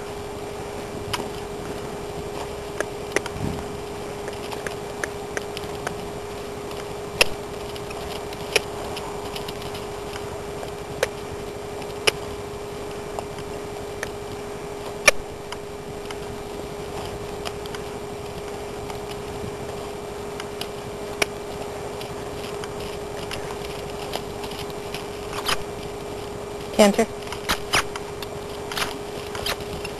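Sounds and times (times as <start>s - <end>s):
camcorder hum and hiss: 0.0s - 29.9s
sharp clicks: 2.4s - 3.4s, 4.2s - 6.0s, 6.7s - 11.2s, 27.2s - 29.9s.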